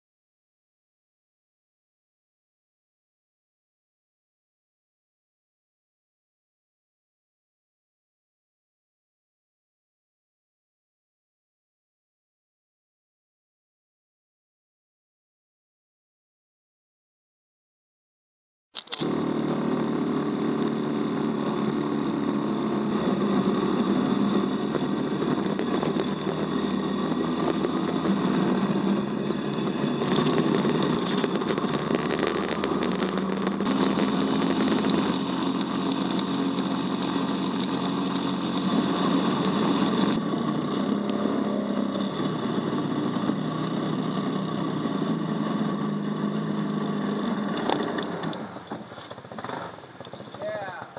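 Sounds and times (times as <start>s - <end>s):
dune buggy engine running: 18.8s - 50.9s.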